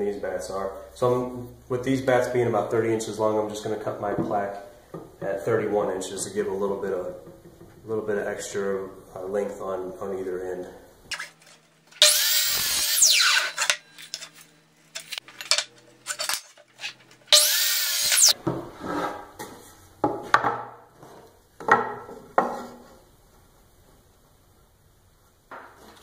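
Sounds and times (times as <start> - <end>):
miter saw blade running: 12.0 - 14.3, 16.1 - 18.4.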